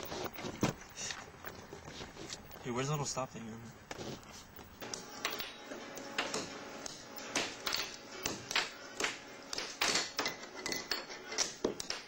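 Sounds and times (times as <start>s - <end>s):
air hockey puck clacks: 11.4s - 12.0s.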